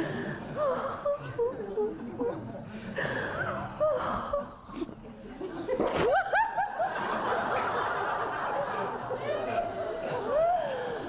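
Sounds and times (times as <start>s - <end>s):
people laughing: 4.8s - 11.0s.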